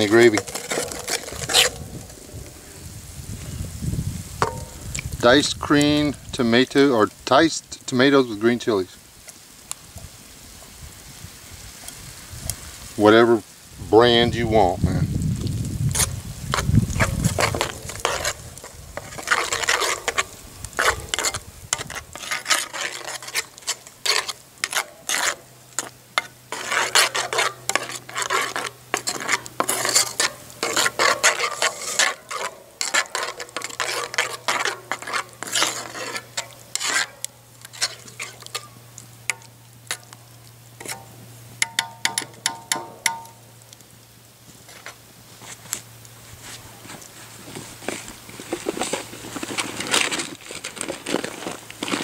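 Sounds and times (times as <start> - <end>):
metal spoon scraping a skillet: 0.0 - 2.4, 4.4 - 8.8, 15.9 - 40.2, 40.8 - 43.4.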